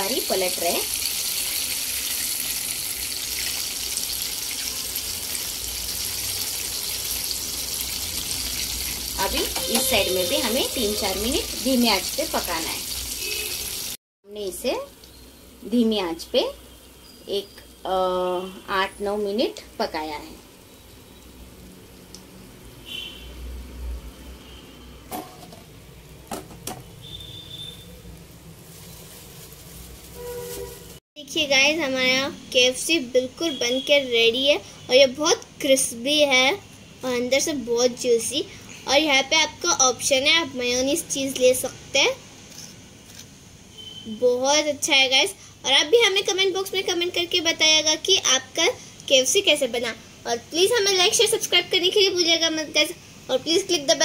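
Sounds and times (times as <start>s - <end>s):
chicken sizzling in hot oil: 0.0s - 14.0s.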